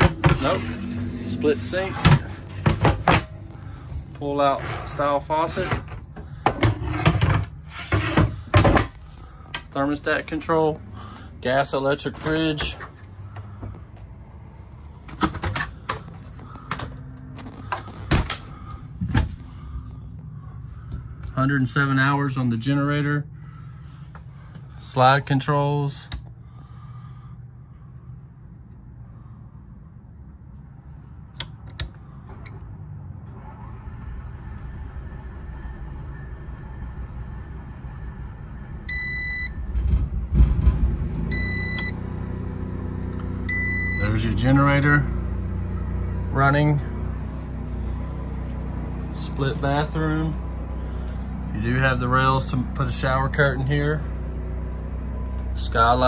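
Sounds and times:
steady low hum: 0.0 - 56.0
short electronic beeps: 41.3 - 42.0, 43.5 - 44.1.

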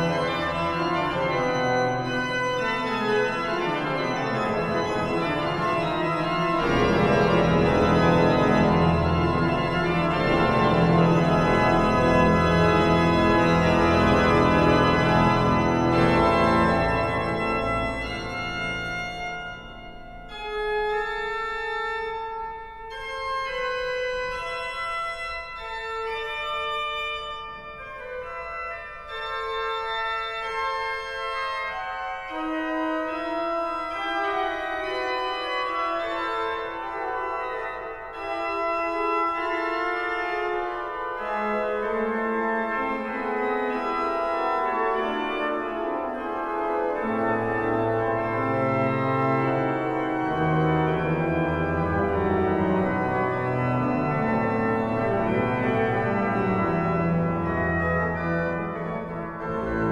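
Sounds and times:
organ pedal bass: 0.0 - 59.9
pipe organ playing a fugue: 0.0 - 59.9.

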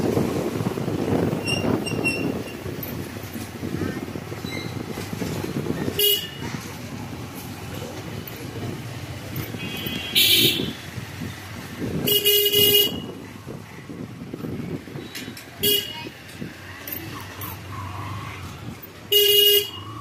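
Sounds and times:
street traffic noise: 0.0 - 20.0
vehicle horns tooting: 5.9 - 6.5, 9.4 - 10.9, 12.0 - 13.2, 15.6 - 16.1, 19.1 - 20.0.

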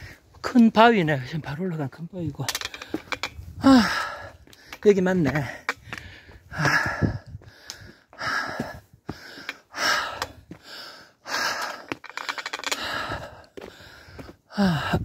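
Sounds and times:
heavy breathing: 2.8 - 4.8, 5.4 - 15.0
footsteps scuffing on rock: 13.5 - 14.4.

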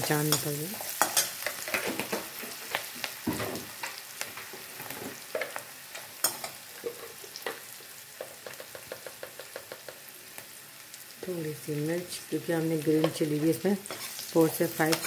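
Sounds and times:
onions sizzling in hot oil: 0.0 - 15.0
metal spoon scraping a pan: 0.3 - 2.5, 6.0 - 7.5, 13.8 - 15.0.

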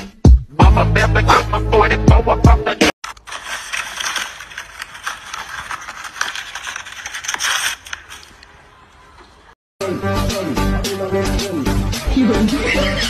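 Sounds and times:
paper rustling and crackling: 3.0 - 9.6.

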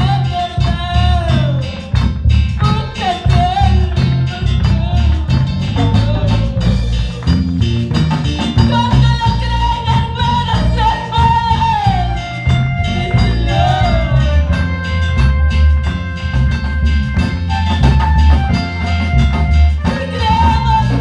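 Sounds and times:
woman singing: 0.0 - 1.9, 2.6 - 6.8, 8.7 - 12.2, 12.9 - 14.7, 19.8 - 21.0
band playing worship music: 0.0 - 21.0.

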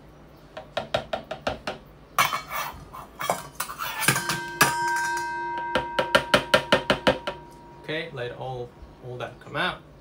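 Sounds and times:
spoon scraping: 2.2 - 5.6
metal spoon clinking on jar: 3.3 - 7.5
steady ringing tone: 4.1 - 8.4.

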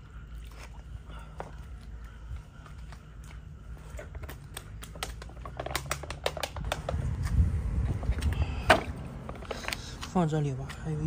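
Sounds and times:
flip-flops on pavement: 1.2 - 11.0
low rumble: 6.7 - 9.5.

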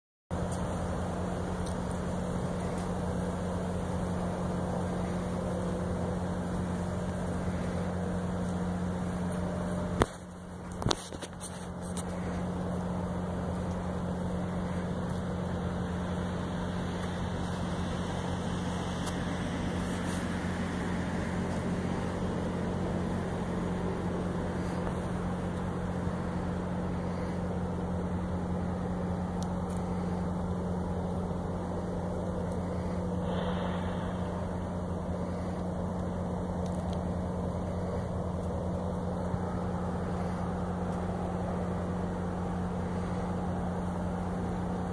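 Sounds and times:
car engine idling: 0.3 - 44.9
faint clicks: 35.5 - 39.4.

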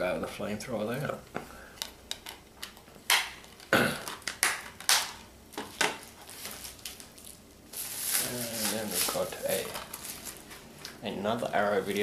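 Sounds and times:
padded mailer rustling: 6.0 - 10.7.

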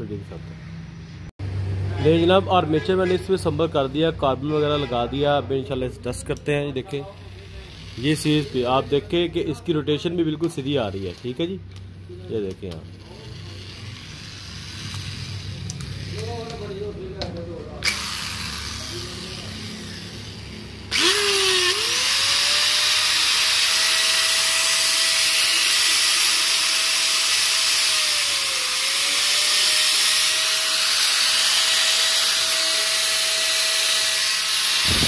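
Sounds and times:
angle grinder motor whining: 12.9 - 16.9, 17.8 - 35.0.

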